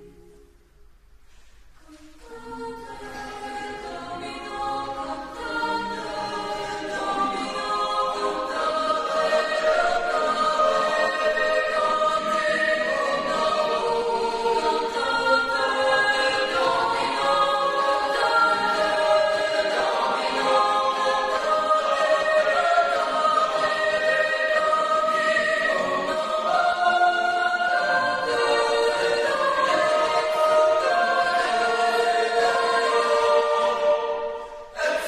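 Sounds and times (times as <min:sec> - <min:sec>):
choir singing unaccompanied: 0:01.9 - 0:35.0.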